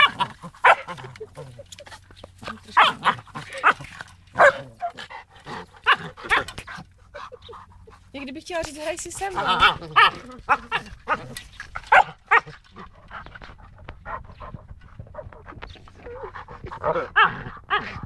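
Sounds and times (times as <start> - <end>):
puppies whining and yipping: 4.4 - 8.1, 9.2 - 18.0.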